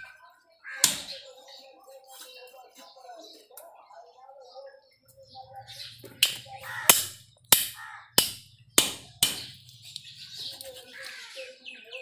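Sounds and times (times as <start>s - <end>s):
cleaver chopping fish on block: 0.8s - 1.1s, 6.2s - 9.6s.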